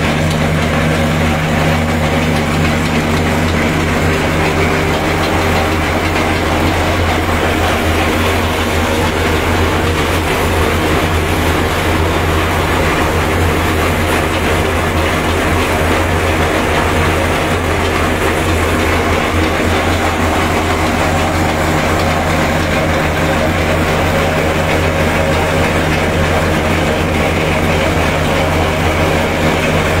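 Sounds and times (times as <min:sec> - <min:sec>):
shelling machine drone: 0:00.0 - 0:30.0
tractor engine running: 0:00.0 - 0:30.0.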